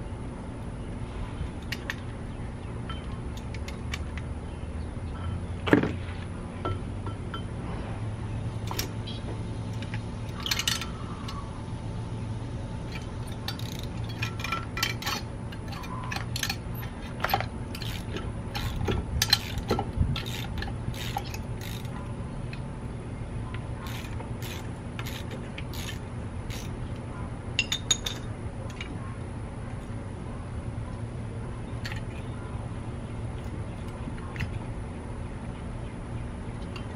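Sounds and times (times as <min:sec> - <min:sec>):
steady low hum: 0:00.0 - 0:36.9
wrench clinking on brake caliper: 0:09.8 - 0:11.4, 0:12.9 - 0:21.9.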